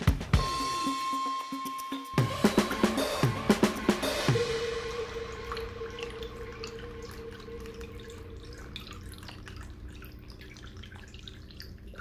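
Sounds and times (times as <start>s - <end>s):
low steady pump hum: 2.2s - 12.0s
fountain water trickling over rocks: 5.3s - 12.0s.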